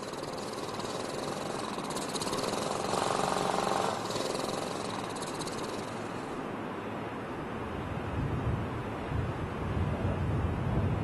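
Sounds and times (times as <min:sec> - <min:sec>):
generator engine running: 0:00.0 - 0:06.4.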